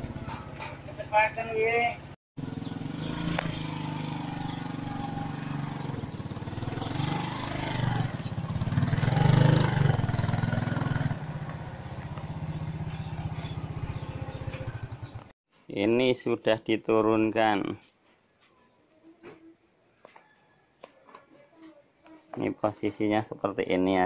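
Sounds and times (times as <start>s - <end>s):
small motorcycle engine running: 0.0s - 15.3s.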